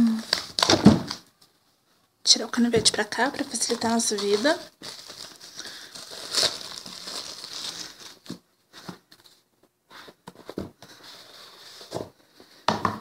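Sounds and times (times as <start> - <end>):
plastic shrink-wrap crinkling: 0.1 - 1.2, 2.8 - 8.4.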